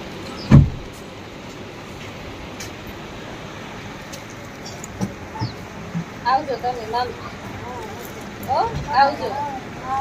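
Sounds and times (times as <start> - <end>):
heavy dull thump: 0.5 - 1.0.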